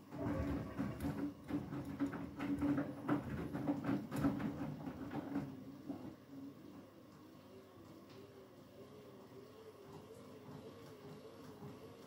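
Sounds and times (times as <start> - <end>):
water sloshing in drum: 0.0 - 5.4
washing machine motor hum: 0.0 - 7.0.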